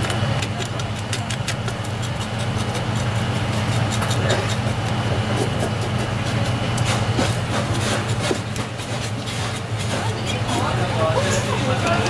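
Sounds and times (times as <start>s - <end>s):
knife scraping fish scales: 0.0s - 11.8s.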